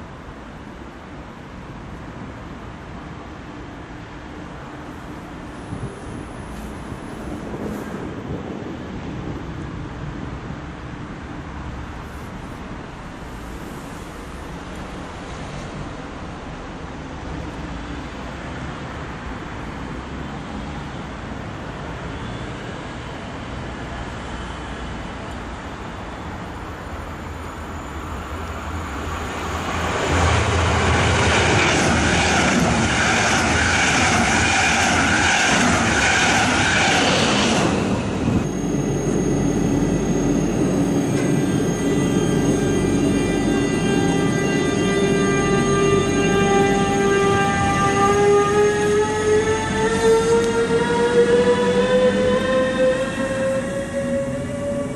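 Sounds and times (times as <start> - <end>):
train rumbling over steel bridge: 0.0 - 22.1, 22.8 - 54.9
electric locomotive whine: 3.0 - 9.8, 22.9 - 54.9.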